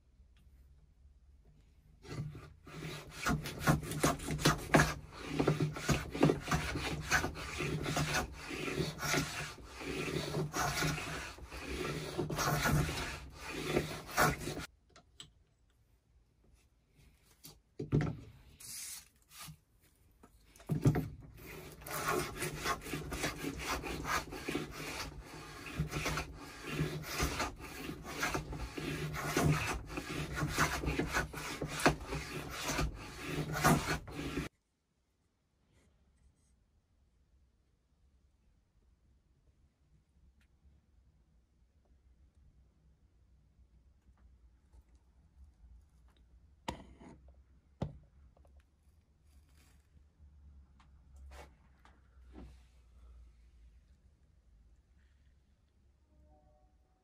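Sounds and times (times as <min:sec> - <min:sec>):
hand plane shaving wood: 0:02.0 - 0:14.7, 0:20.9 - 0:34.5.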